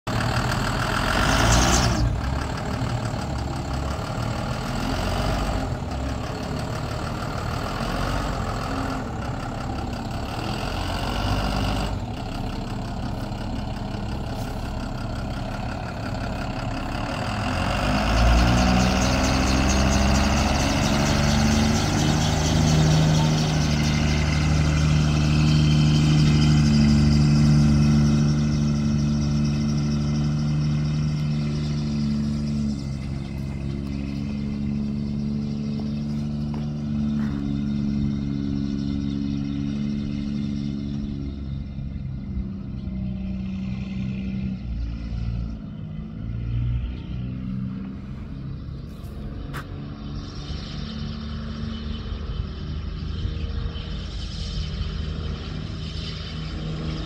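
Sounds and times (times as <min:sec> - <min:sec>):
bus diesel engine idling: 0:00.1 - 0:39.1
bus pulling away: 0:00.1 - 0:57.0.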